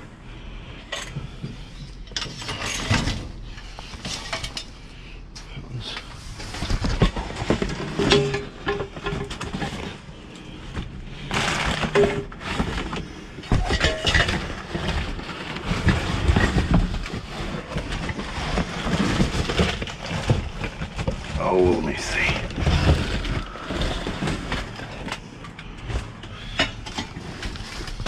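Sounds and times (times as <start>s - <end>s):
rustling: 6.1s - 26.2s
objects knocking and clattering: 6.4s - 28.0s.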